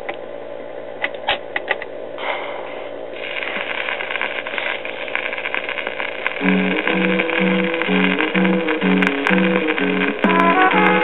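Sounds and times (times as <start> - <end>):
stylus hiss and crackle: 2.2 - 11.0
record playing weakly: 3.1 - 11.0.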